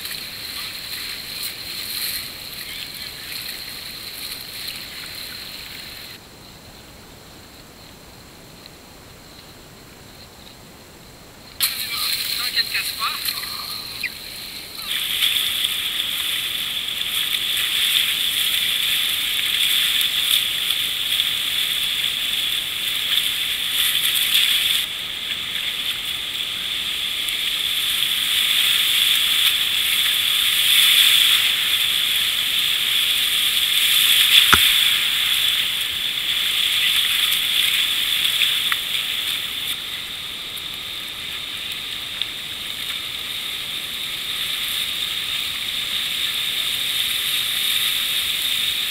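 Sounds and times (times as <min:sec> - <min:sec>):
whitewater rapids rushing: 0:11.6 - 0:40.2.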